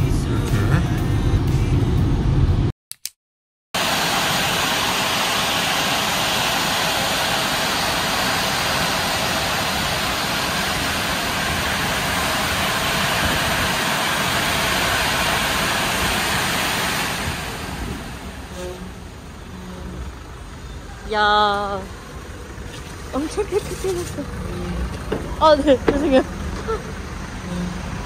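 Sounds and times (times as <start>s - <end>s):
air-dryer blowers rushing: 3.8s - 20.2s.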